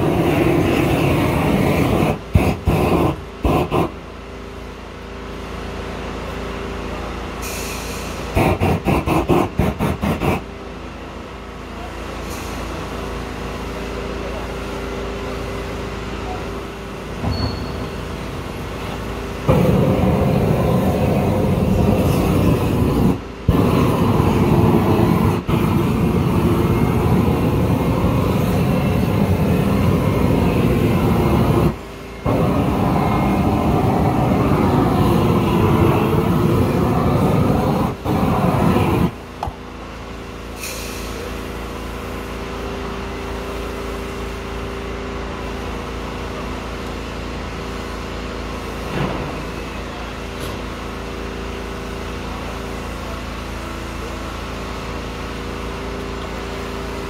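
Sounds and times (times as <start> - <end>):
roofing torch roaring: 0.0 - 4.2, 7.4 - 10.6, 14.2 - 44.4
steady hum with held tone: 13.6 - 40.0.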